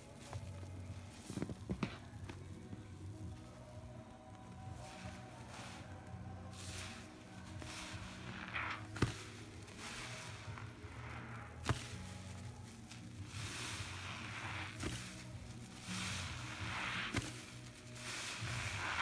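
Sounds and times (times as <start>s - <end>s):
wet sponge squelching in foam: 4.7s - 19.0s.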